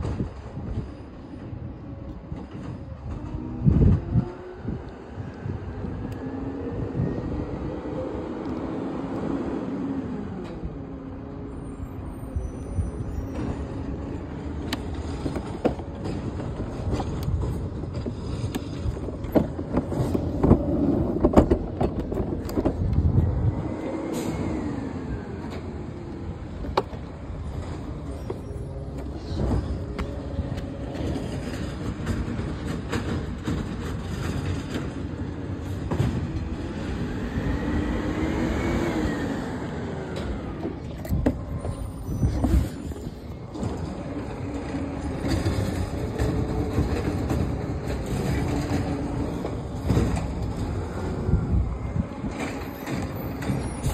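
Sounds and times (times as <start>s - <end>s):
diesel engine revving: 35.2s - 53.9s.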